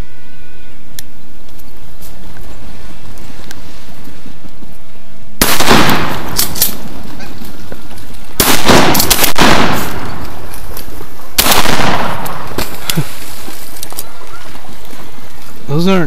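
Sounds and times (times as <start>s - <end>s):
shotgun shots echoing: 5.4s - 7.2s, 8.4s - 10.5s, 11.3s - 12.9s.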